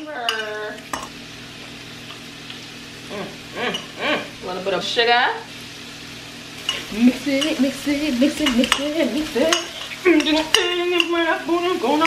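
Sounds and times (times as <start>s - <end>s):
vegetables sizzling in a pan: 0.0s - 12.0s
person humming: 3.1s - 4.3s, 6.9s - 11.2s.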